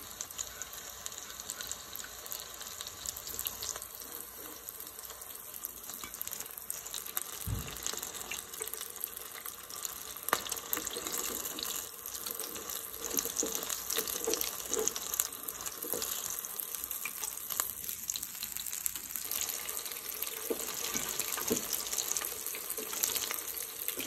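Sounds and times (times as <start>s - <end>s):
deep-frying crackling sizzle: 0.0s - 24.0s.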